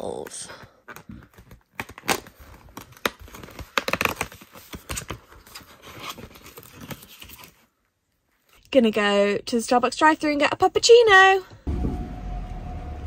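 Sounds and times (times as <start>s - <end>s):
crinkling and rustling: 0.0s - 8.7s.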